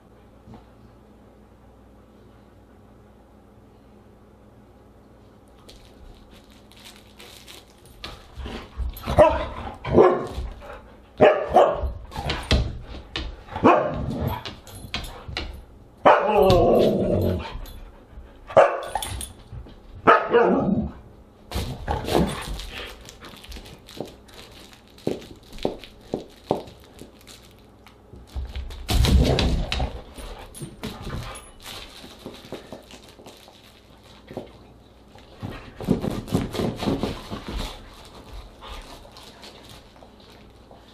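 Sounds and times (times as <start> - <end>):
dog barking and howling: 16.0 - 17.4, 20.0 - 20.9.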